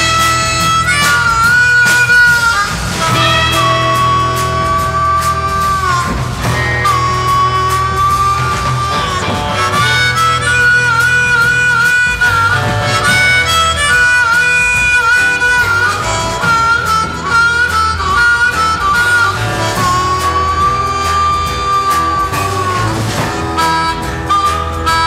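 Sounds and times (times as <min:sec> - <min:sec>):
bass: 0:00.0 - 0:25.0
blues harmonica solo: 0:00.0 - 0:25.0
drums: 0:00.0 - 0:25.0
electric guitar: 0:00.0 - 0:25.0.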